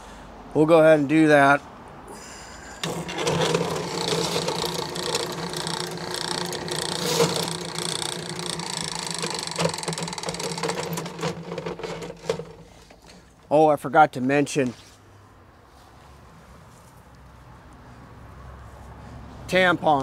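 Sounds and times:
drain-cleaning machine humming: 2.8 - 13.2
machine rattling: 2.8 - 13.4.

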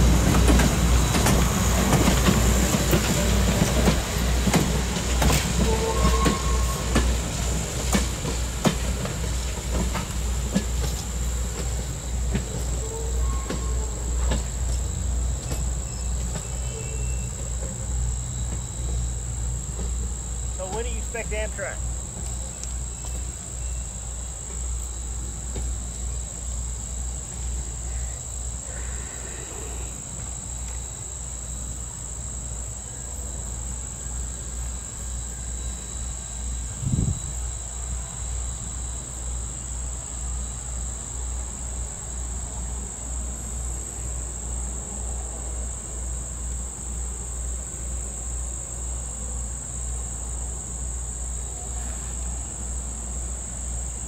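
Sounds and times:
insects singing: 0.0 - 41.0.

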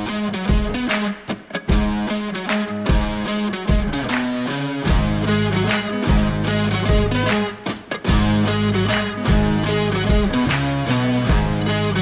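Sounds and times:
electric guitar: 0.0 - 12.0
rock music: 0.0 - 12.0
steady drum beat: 0.4 - 0.9, 1.7 - 2.1, 4.9 - 12.0.

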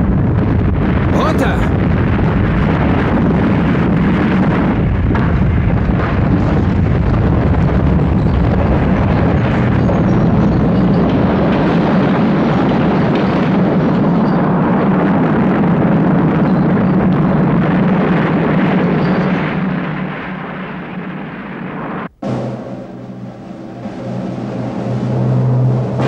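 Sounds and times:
rumble of falling rock and debris: 1.8 - 21.7.

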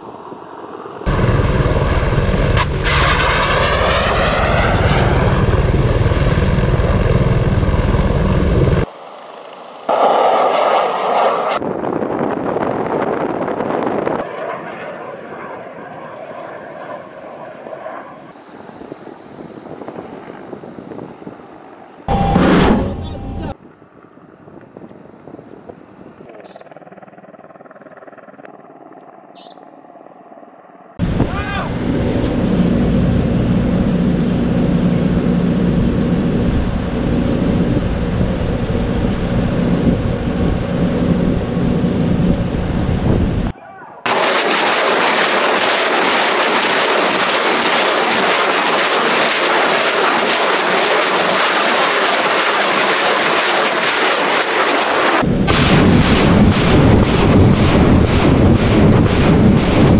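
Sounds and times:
helicopter rotor beating: 0.0 - 8.9, 26.0 - 30.1, 30.7 - 43.5, 44.1 - 59.9
faint high whine: 21.4 - 23.6
rocket exhaust rushing: 44.1 - 59.9.

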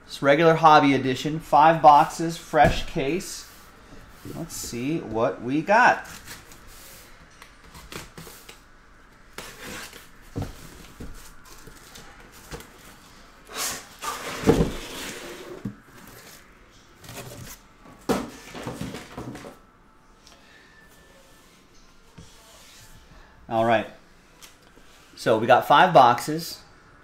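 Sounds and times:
cardboard rustling and scraping: 9.3 - 13.1, 13.8 - 16.4, 17.0 - 19.6.

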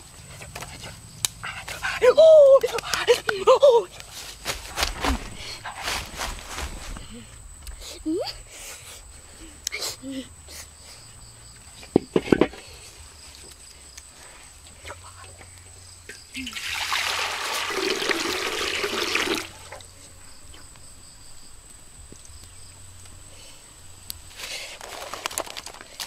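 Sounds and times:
water pouring into a metal wok: 16.5 - 19.6.

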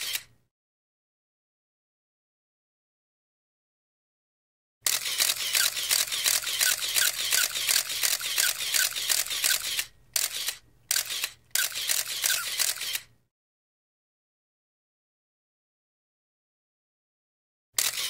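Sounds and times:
camera shutter burst: 0.0 - 0.3, 4.8 - 13.1, 17.8 - 18.0.

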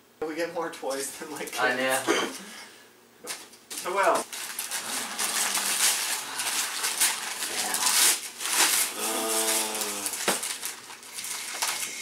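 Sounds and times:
wrapping paper tearing and crinkling: 3.3 - 12.0.

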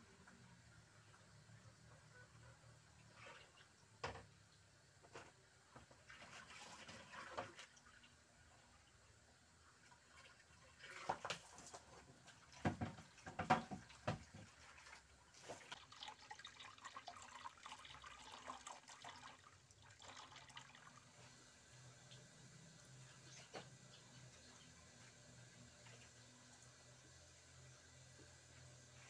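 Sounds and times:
water running from a hose: 3.0 - 29.0
sharp knocks and clatters: 12.6 - 14.6.

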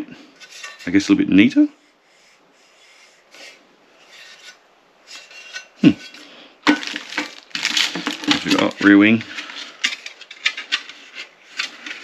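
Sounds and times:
metal part scraping on box: 0.4 - 1.0, 3.4 - 6.2, 6.8 - 12.0
packaging rustling: 6.7 - 12.0.

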